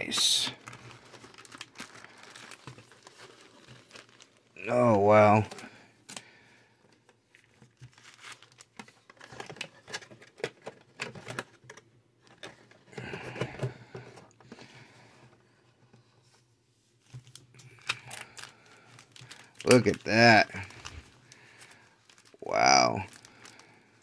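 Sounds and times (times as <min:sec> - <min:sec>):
foil packs crinkling: 0:00.0 - 0:05.8, 0:07.4 - 0:11.5, 0:17.1 - 0:24.0.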